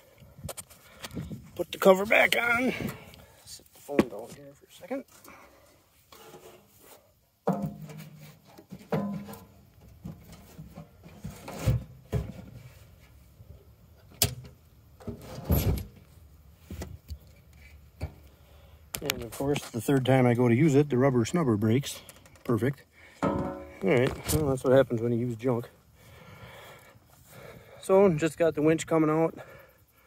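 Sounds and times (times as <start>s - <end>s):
knocks on steel frame: 23.2s - 23.8s.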